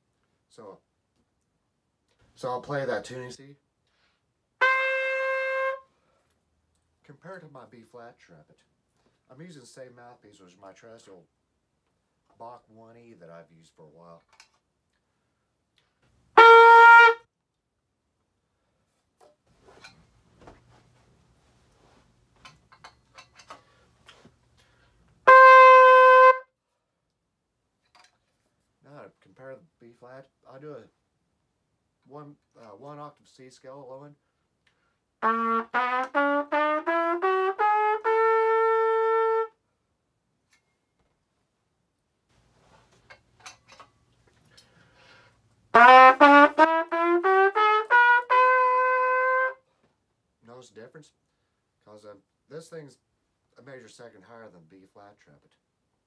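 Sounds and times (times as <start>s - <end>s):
trumpet held note: 4.6s - 5.9s, 16.4s - 17.2s, 25.3s - 26.5s, 35.2s - 39.6s, 45.8s - 49.6s.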